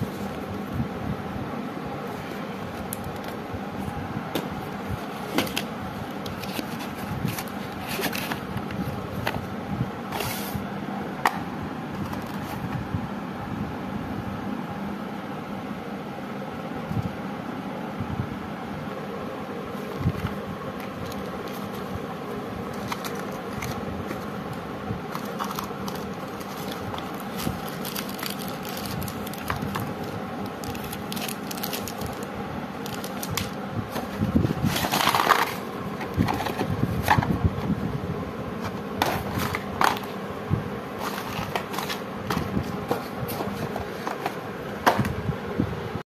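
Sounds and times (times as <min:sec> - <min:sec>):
steady low hum: 0:00.0 - 0:46.0
cardboard and plastic rustling: 0:02.0 - 0:09.5, 0:10.1 - 0:12.8, 0:19.7 - 0:37.8, 0:38.6 - 0:40.2, 0:40.8 - 0:45.2.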